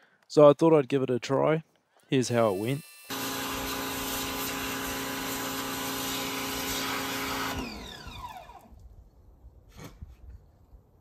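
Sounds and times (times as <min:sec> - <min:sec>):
motor winding down whine: 0:03.0 - 0:08.8
pressure washer running: 0:03.1 - 0:08.7.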